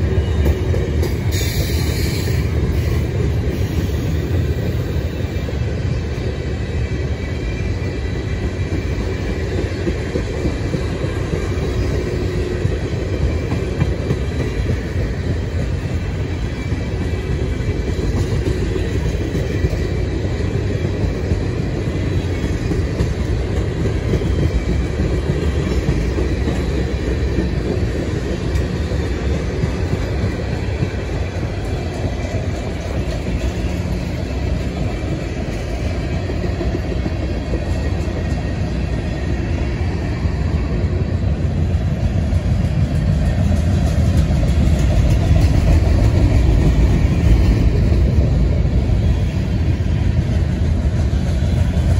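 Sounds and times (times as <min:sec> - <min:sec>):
train wheels rumbling on rails: 0:00.0 - 0:51.9.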